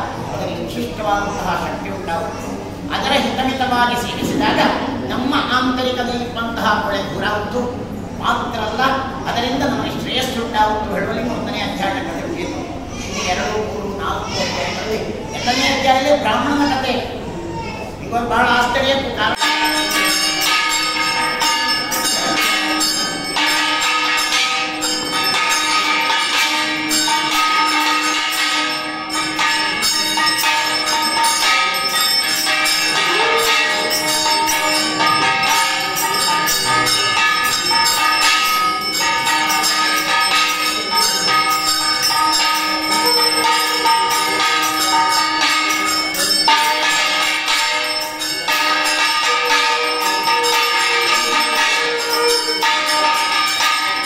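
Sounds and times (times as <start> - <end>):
brass hand bell ringing: 19.3 - 54.0.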